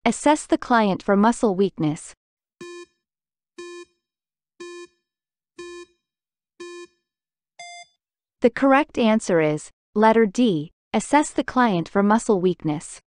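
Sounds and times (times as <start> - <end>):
short electronic beeps: 5.6 - 5.9, 7.6 - 7.9.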